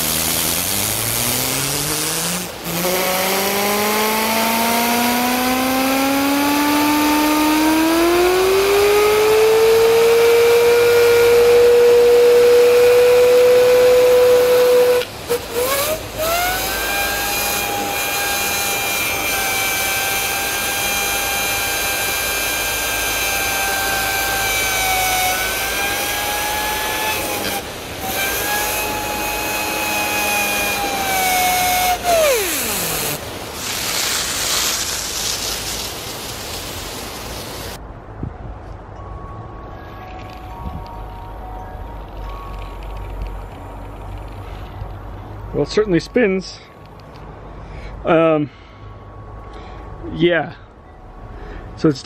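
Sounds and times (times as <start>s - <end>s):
hose spray hissing: 0.0s - 5.4s, 26.6s - 37.8s
spinning bearing cleaner whining: 0.0s - 37.8s.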